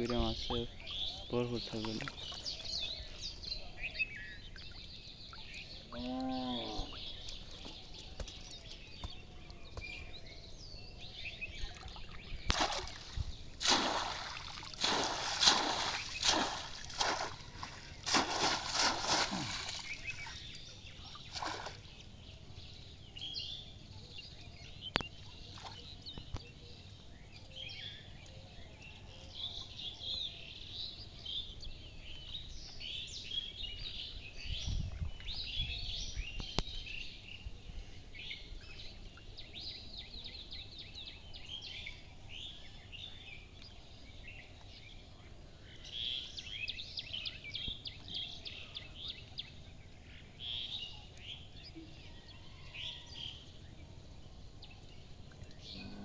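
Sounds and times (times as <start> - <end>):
small birds chirping: 0.0 - 56.0
pond water splashing: 0.2 - 3.5, 11.5 - 22.4, 25.0 - 26.5.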